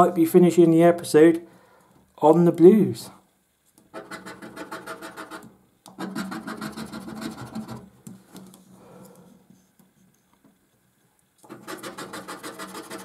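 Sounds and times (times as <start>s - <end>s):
scratching coating off scratchcard: 3.8s - 8.6s, 11.4s - 13.0s.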